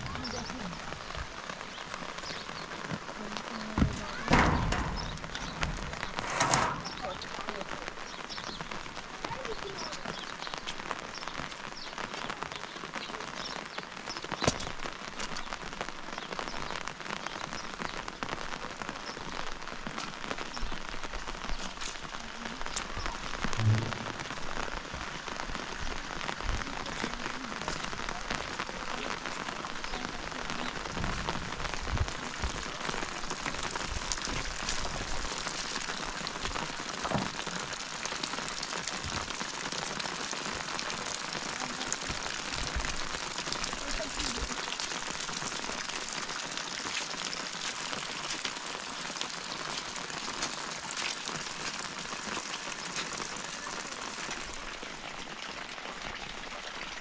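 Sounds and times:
steady rain falling: 0:00.0 - 0:57.0
short low knock: 0:23.6 - 0:24.3.

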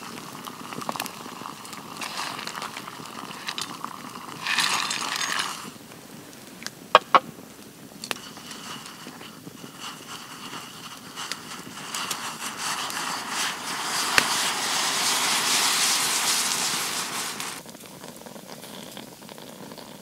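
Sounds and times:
loud hiss: 0:00.0 - 0:05.9, 0:07.9 - 0:17.6
campfire crackling and popping: 0:00.0 - 0:20.0.

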